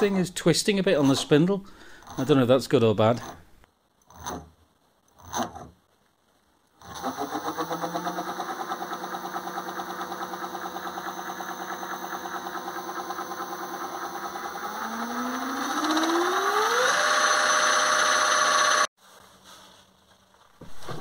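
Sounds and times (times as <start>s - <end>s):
electric motor whine pulsing: 7.0s - 18.9s.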